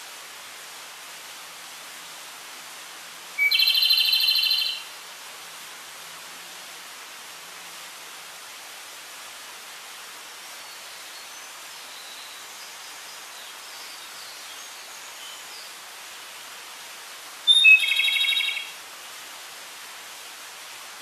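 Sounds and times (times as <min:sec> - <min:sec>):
steady hiss: 0:00.0 - 0:21.0
bird call with rapid trill: 0:03.4 - 0:04.8, 0:17.5 - 0:18.7.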